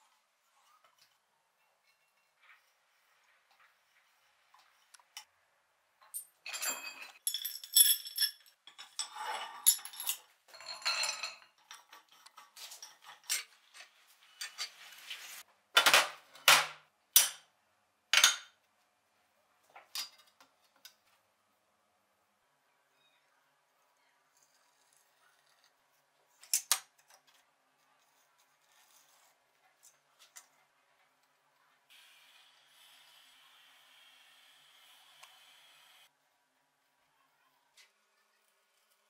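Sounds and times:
metal tools clinking and scraping: 6.0s - 14.9s.

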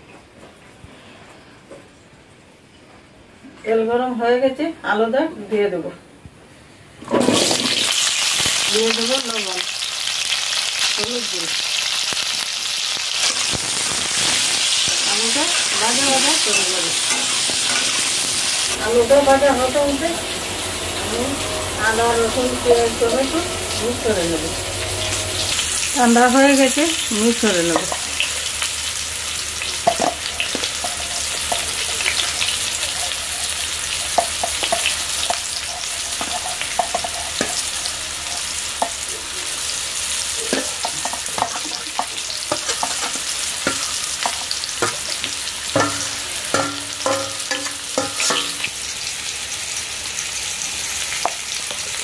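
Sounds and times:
potatoes sizzling in oil: 7.2s - 52.0s
metal spatula scraping steel plate: 14.2s - 18.4s, 40.4s - 48.7s.

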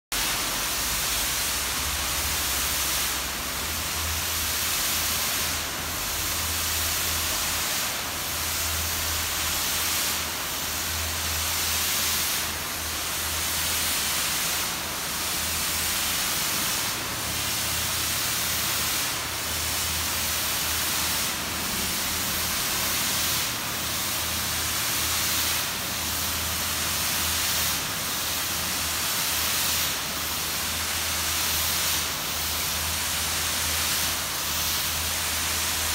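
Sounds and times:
spray gun hissing: 0.2s - 35.9s.

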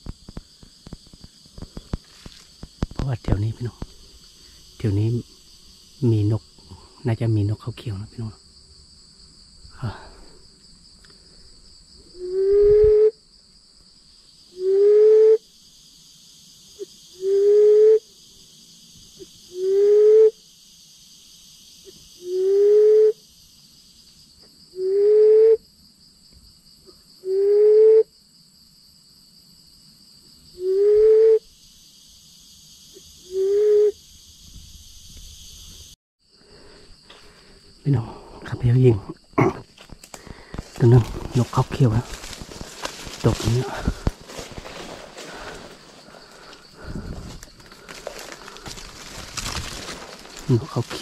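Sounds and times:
high insect hum: 0.0s - 51.0s
reed decoy call hooting: 12.1s - 13.1s, 14.6s - 15.4s, 17.2s - 18.0s, 19.5s - 20.4s, 22.2s - 23.2s, 24.8s - 25.6s, 27.2s - 28.1s, 30.6s - 31.4s, 33.2s - 34.0s.

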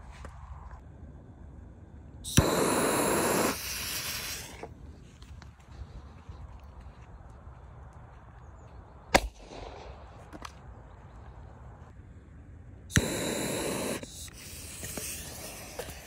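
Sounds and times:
fuse hissing: 2.2s - 4.7s, 12.9s - 16.0s.

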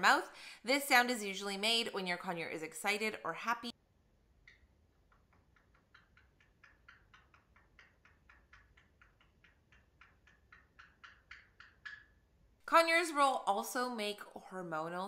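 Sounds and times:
parrot tongue clicks: 4.4s - 12.3s.

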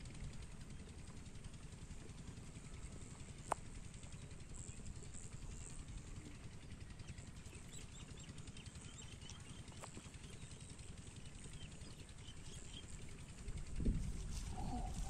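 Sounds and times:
faint bird chirps: 14.3s - 15.0s.

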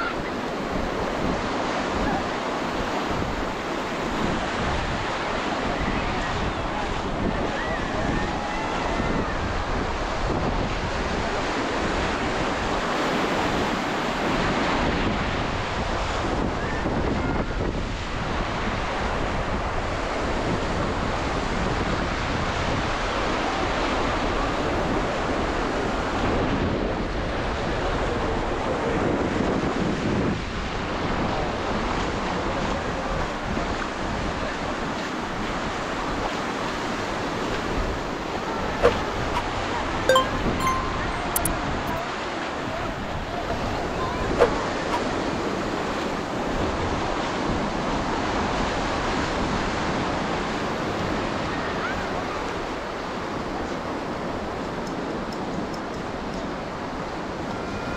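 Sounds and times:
faint crowd chatter: 0.0s - 1.3s.

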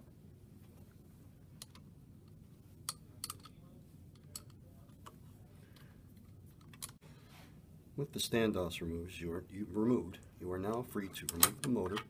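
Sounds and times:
faint low hum: 0.0s - 12.0s
wrench clicking on metal: 2.9s - 3.6s.

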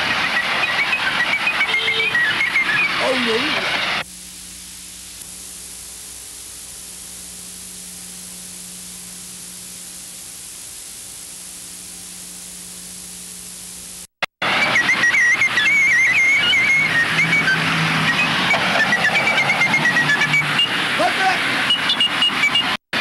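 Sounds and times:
noisy sound with wavering high tone: 0.0s - 22.8s
soundtrack hiss: 0.0s - 23.0s
faint low hum: 4.0s - 14.1s.

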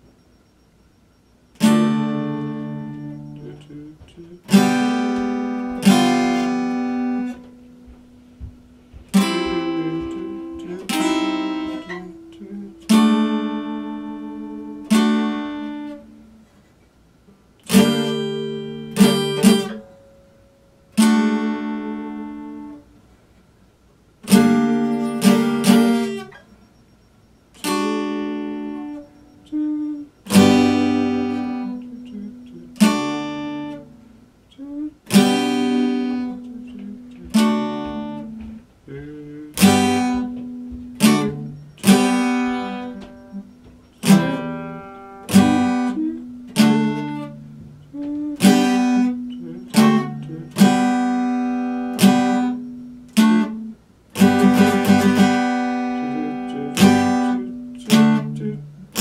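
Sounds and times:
acoustic guitar chords strummed: 0.0s - 59.0s.

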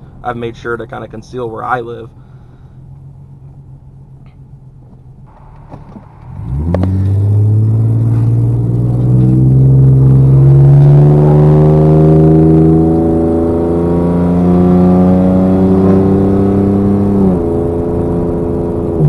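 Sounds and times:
engine accelerating hard: 5.3s - 19.0s.

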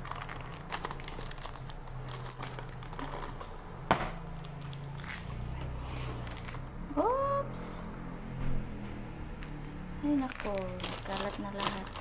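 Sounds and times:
plastic sachets crinkling: 0.0s - 5.5s, 9.4s - 12.0s.

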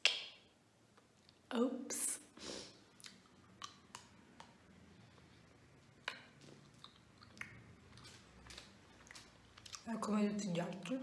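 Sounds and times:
person chewing: 2.8s - 9.9s.

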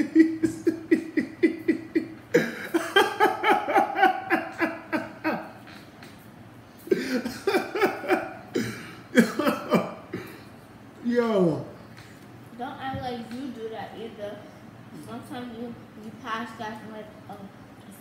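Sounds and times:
man laughing hard: 0.0s - 5.5s, 6.9s - 9.9s.

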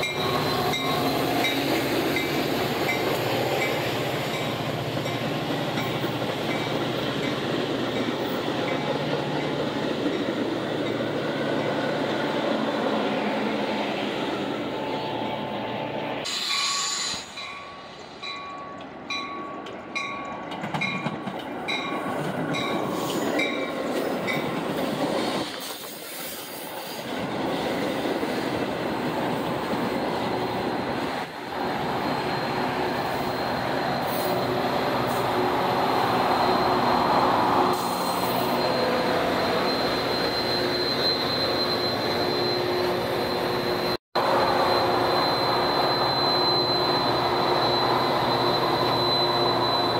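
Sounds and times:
train bell dinging: 0.0s - 11.1s, 16.5s - 24.6s
train cars rolling past: 0.0s - 49.9s
diesel locomotive hum: 27.0s - 49.9s
high-pitched wheel squeal: 29.0s - 49.9s.

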